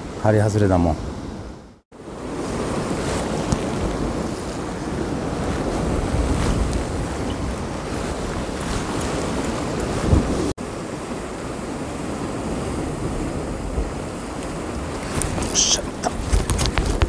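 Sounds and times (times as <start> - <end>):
surf washing against rocks: 0.0 - 17.0
wind buffeting microphone: 0.0 - 17.0.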